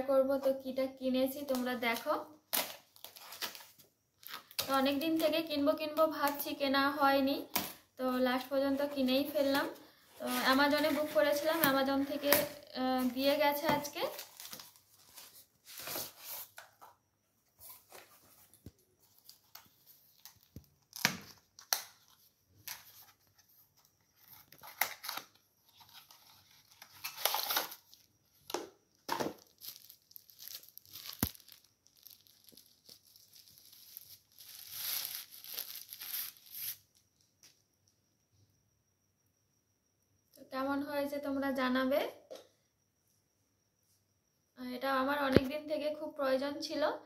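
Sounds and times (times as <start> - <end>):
wrapping rustling: 24.1 - 28.1, 29.3 - 36.8.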